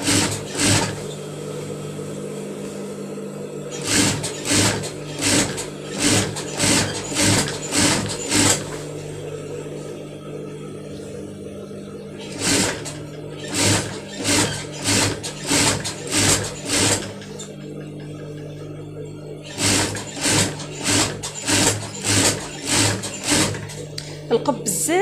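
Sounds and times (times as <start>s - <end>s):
sewing machine stitching bursts: 0.0s - 1.0s, 3.7s - 8.8s, 12.2s - 17.5s, 19.4s - 23.8s
sewing machine hum: 0.0s - 2.7s, 3.3s - 25.0s.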